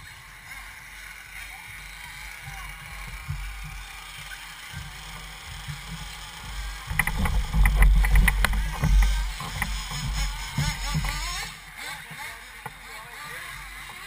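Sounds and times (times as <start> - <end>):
rc car motors whining: 0.0 - 14.0
heavy low rumble: 6.4 - 11.7
sharp knocks: 6.9 - 11.4.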